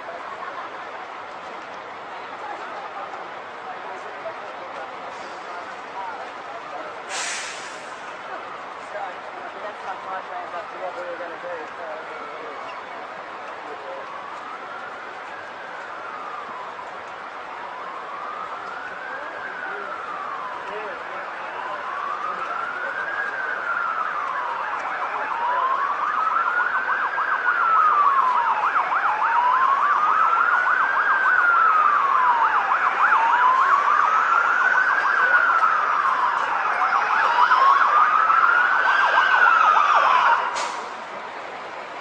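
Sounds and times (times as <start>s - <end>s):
emergency siren wailing: 0.0s - 42.0s.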